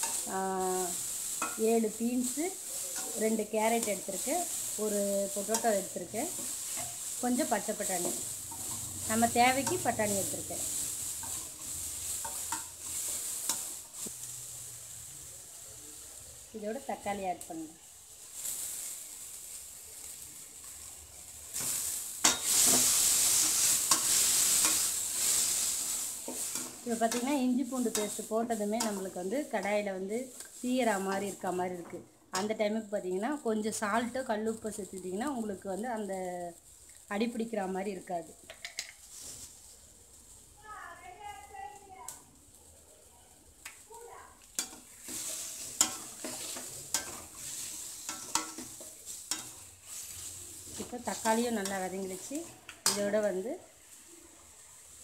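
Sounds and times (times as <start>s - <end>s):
steel spoon scraping a pan: 0.0s - 14.7s, 18.3s - 32.6s, 44.5s - 55.0s
tomatoes sizzling in hot oil: 0.0s - 55.0s.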